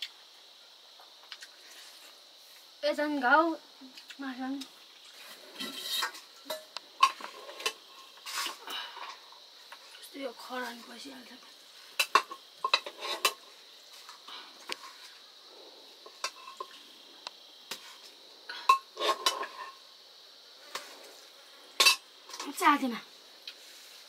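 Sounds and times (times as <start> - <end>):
metal dishes and utensils clinking: 5.6 - 9.1, 12.0 - 13.4, 18.6 - 19.8, 21.8 - 22.5.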